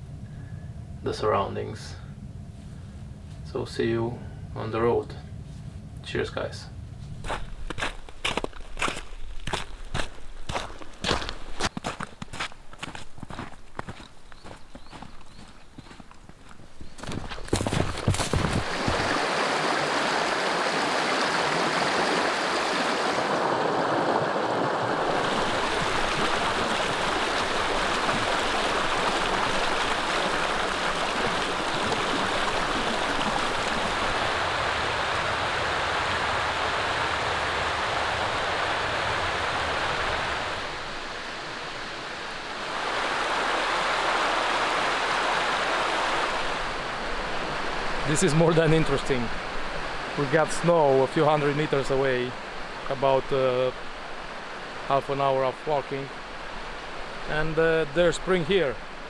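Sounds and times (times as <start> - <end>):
stream rushing over rocks: 17.8 - 59.0.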